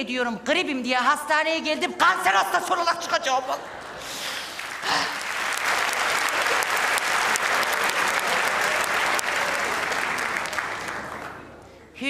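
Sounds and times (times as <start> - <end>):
audience applauding: 3.8 - 11.7.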